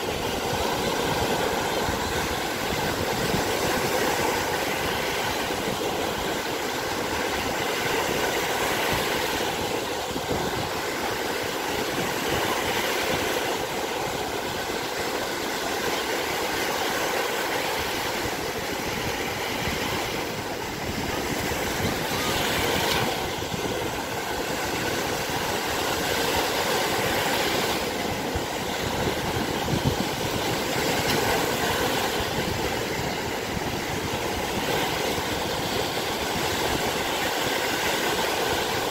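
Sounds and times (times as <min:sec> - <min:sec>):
small waves washing on beach: 0:00.0 - 0:38.9.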